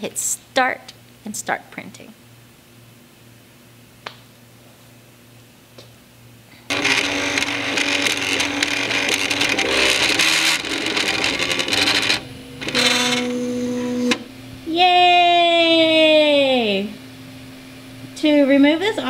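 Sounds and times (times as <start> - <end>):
printer stepper motors whirring: 6.7 - 14.5.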